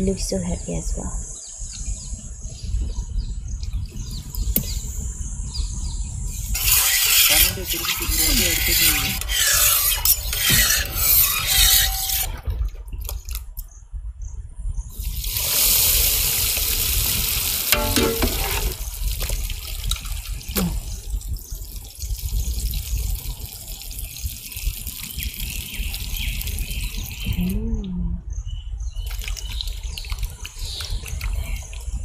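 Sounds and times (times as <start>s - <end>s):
egg mixture pouring into pan: 15.0s - 20.5s.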